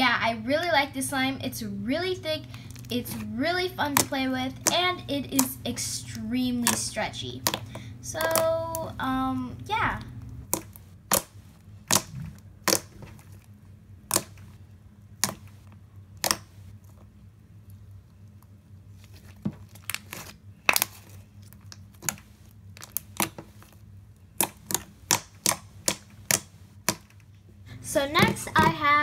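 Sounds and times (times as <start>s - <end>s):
slime squished by hand: 2.4s - 9.0s, 10.4s - 17.1s, 18.8s - 27.1s.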